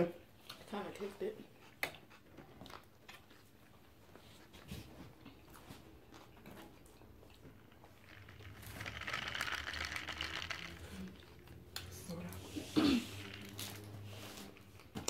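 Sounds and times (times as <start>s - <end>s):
ice rattling in plastic cup: 8.0s - 11.4s, 13.2s - 14.0s.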